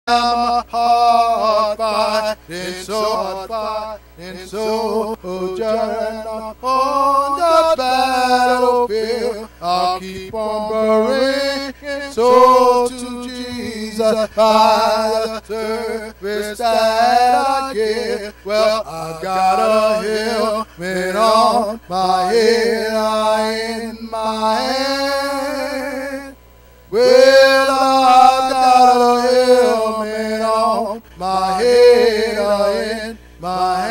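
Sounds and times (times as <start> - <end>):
man singing unaccompanied: 0.1 - 33.9.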